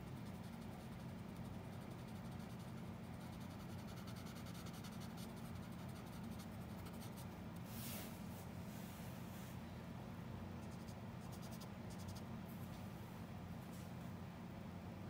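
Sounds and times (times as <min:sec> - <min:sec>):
low steady hum: 0:00.0 - 0:15.0
pencil scratching on paper: 0:00.1 - 0:07.3.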